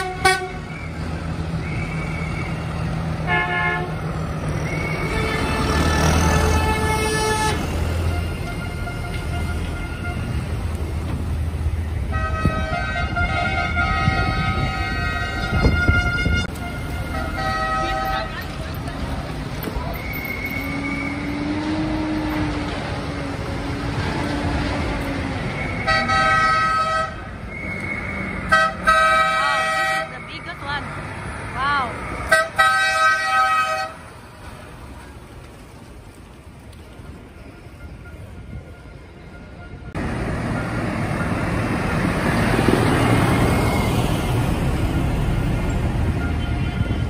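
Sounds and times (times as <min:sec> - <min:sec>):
vehicle horn blast: 0:00.0 - 0:00.6, 0:03.2 - 0:03.9, 0:05.0 - 0:10.4, 0:12.1 - 0:18.3, 0:25.8 - 0:27.3, 0:28.5 - 0:30.2, 0:32.3 - 0:34.0
cars passing: 0:00.0 - 0:47.0
heavy vehicle engines: 0:00.0 - 0:47.0
road traffic: 0:00.0 - 0:47.0.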